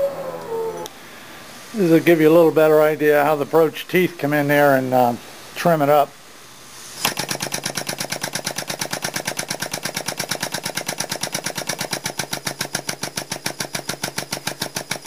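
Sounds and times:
press broach rapid mechanical chatter: 7.1 - 15.0.

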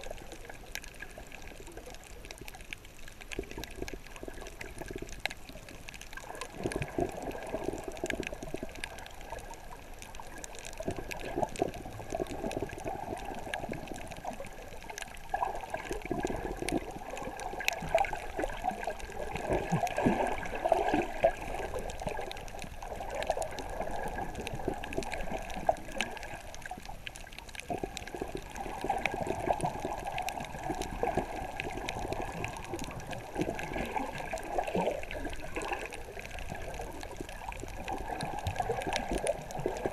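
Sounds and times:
water sloshing and bubbling: 0.0 - 39.9
faint clicks: 0.1 - 39.9.

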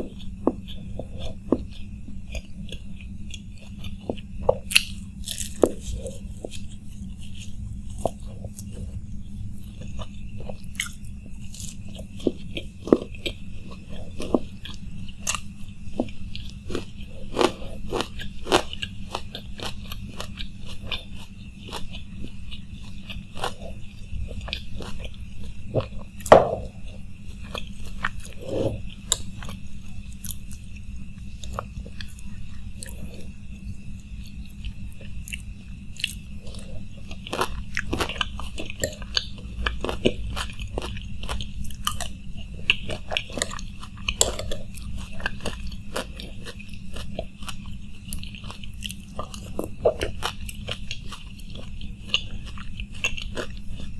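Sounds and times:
crisp chewing crunches: 0.0 - 53.9
steady low hum: 0.0 - 53.9.

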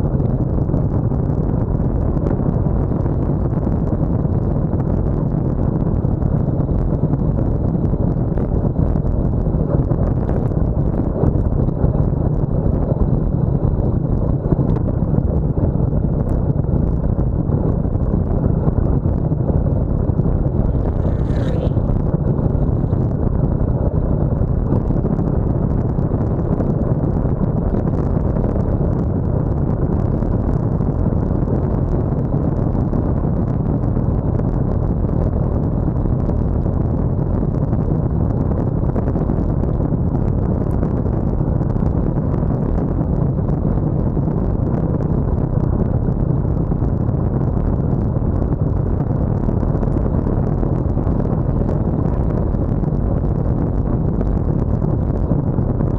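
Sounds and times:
wind rumble on microphone: 0.0 - 55.9
tyre noise on tarmac: 20.2 - 23.1.

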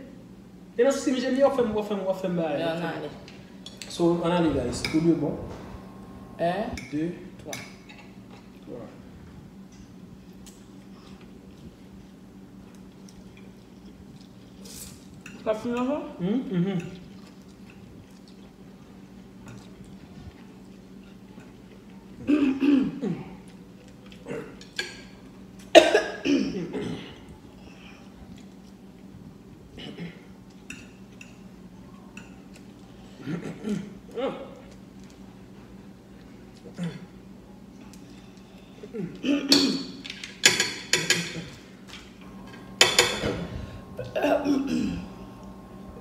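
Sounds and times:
mumbled voice: 16.2 - 17.0
person coughing: 22.2 - 23.3, 25.7 - 27.2, 29.8 - 30.3, 38.8 - 39.9, 44.0 - 45.1.

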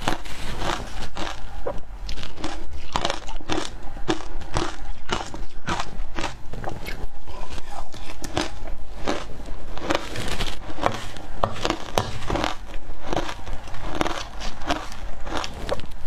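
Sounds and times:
crushed ice crunched between teeth: 8.1 - 16.0.

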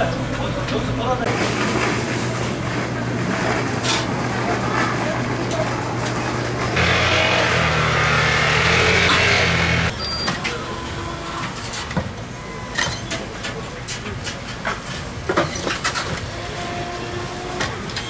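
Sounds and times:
machine running with hiss and hum: 5.7 - 9.9.

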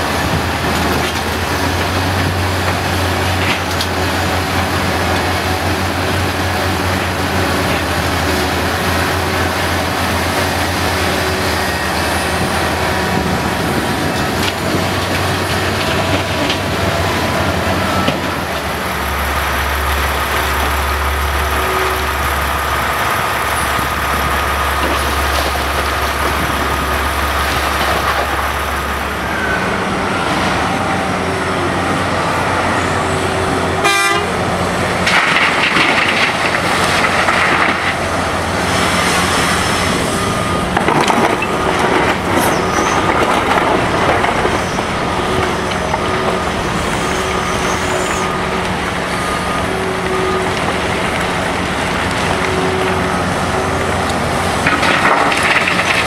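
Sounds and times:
diesel engines running hard: 0.0 - 56.0
rock pouring into steel truck bed: 54.6 - 56.0.

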